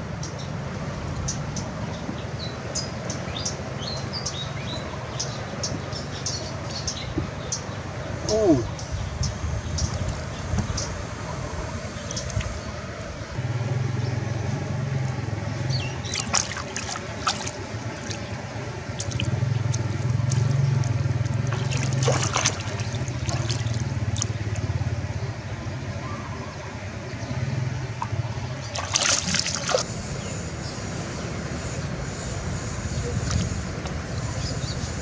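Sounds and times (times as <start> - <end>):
water splashing: 15.4 - 25.4, 27.7 - 29.9.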